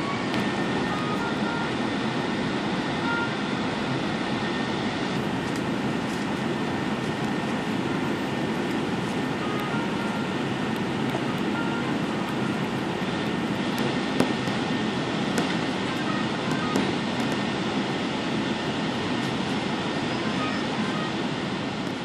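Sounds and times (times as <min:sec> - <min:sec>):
aircraft cabin rumble and hiss: 0:00.0 - 0:22.0.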